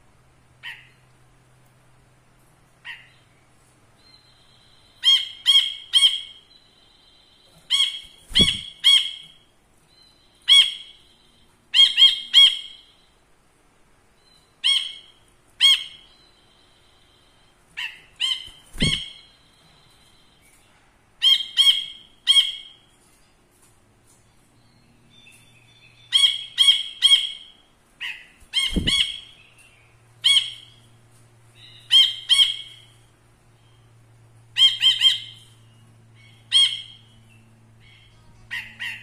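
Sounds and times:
bird calling sharp notes: 0:04.3 - 0:09.5, 0:14.6 - 0:20.3, 0:25.9 - 0:29.6
dull thumps of bird in cage: 0:08.3 - 0:08.8, 0:28.7 - 0:29.1.

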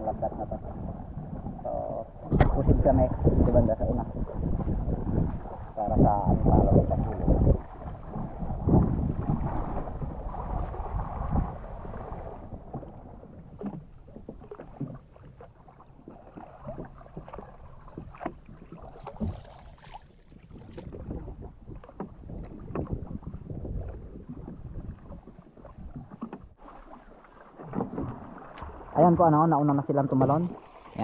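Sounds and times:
wind on microphone: 0:00.0 - 0:26.5
water splashing around canoe: 0:00.0 - 0:31.0
knocks against wooden hull: 0:20.6 - 0:23.4.

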